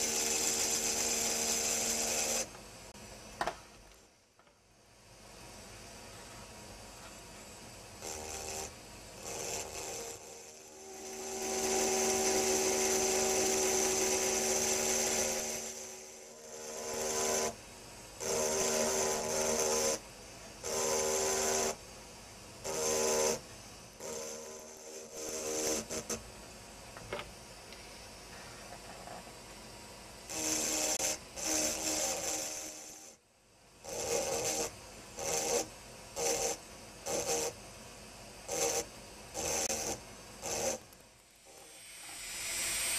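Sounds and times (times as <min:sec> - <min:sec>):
engraving drill grinding glass: 0:00.0 - 0:02.5, 0:08.0 - 0:17.6, 0:18.2 - 0:20.0, 0:20.6 - 0:21.8, 0:22.6 - 0:23.4, 0:24.0 - 0:26.2, 0:30.3 - 0:33.2, 0:33.8 - 0:37.6, 0:38.4 - 0:42.9.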